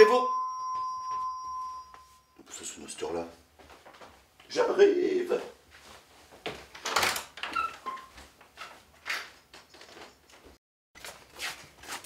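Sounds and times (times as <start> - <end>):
footsteps: 3.5 - 4.6, 5.3 - 6.7.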